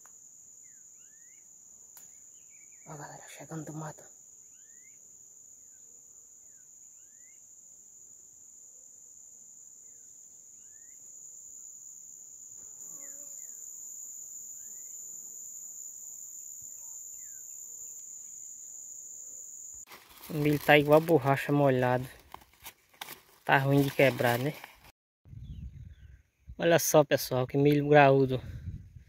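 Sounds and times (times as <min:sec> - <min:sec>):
high-pitched insect trill: 0:00.0 - 0:24.8.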